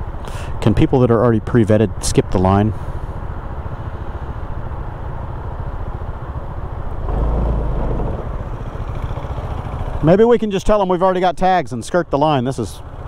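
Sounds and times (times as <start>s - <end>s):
deeper engine rumble: 0.0s - 13.0s
scooter engine idling: 2.8s - 10.3s, 12.7s - 13.0s.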